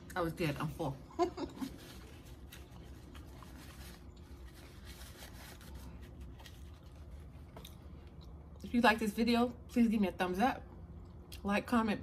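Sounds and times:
low room hum: 0.0 - 12.0
paper napkin rustling: 1.2 - 7.5.

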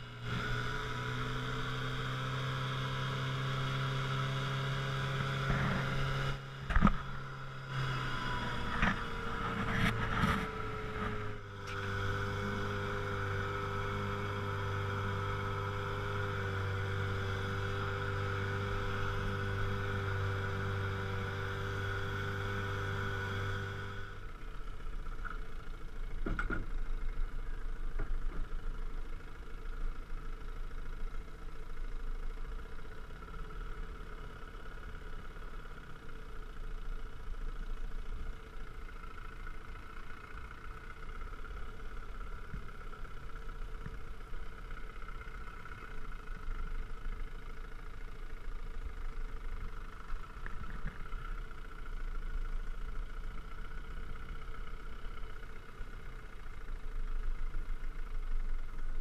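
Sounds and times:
outboard motor running: 5.1 - 59.0.

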